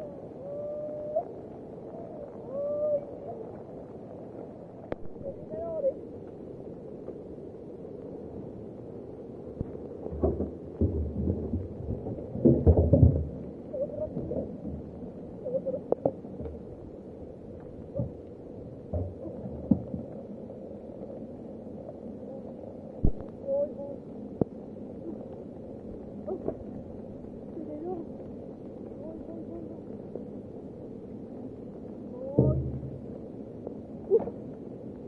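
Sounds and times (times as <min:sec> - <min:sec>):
rain hiss: 0:00.0 - 0:35.0
steel drum rolling on ground: 0:32.2 - 0:33.3.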